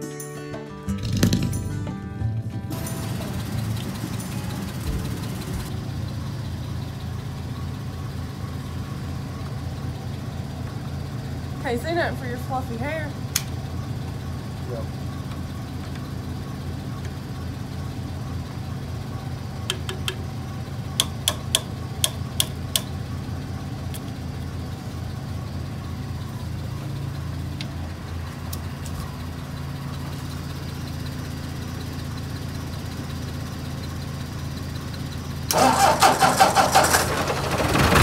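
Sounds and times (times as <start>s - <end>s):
tractor engine cranking: 0.9s - 7.5s, 19.6s - 38.0s
engine idling: 0.9s - 38.0s.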